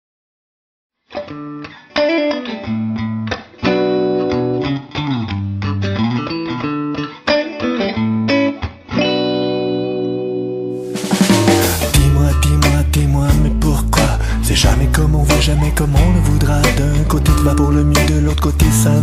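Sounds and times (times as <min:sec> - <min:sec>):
plucked guitar notes: 0:01.2 - 0:19.0
bass line: 0:10.8 - 0:19.0.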